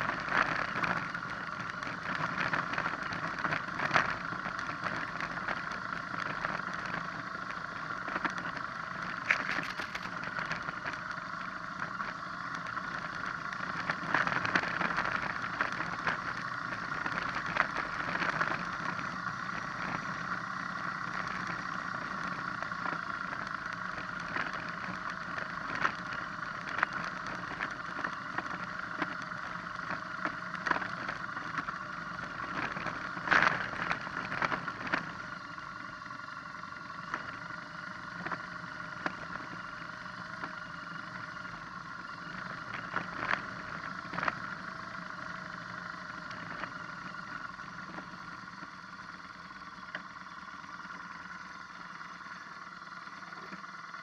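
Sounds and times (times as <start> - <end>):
motorcycle engine running: 0.0 - 54.0
motorcycle rattling over stones: 9.1 - 10.9.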